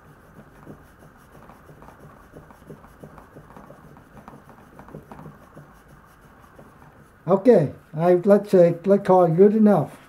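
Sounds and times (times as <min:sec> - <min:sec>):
knife scratching on wooden board: 0:00.0 - 0:07.4.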